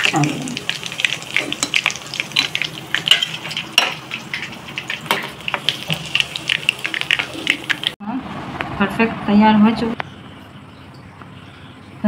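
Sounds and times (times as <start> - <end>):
kebabs sizzling in hot oil: 0.0 - 8.0.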